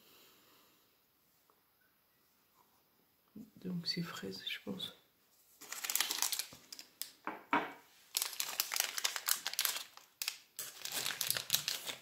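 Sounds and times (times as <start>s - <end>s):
packaging crinkling and rustling: 5.6s - 7.2s, 8.0s - 12.0s.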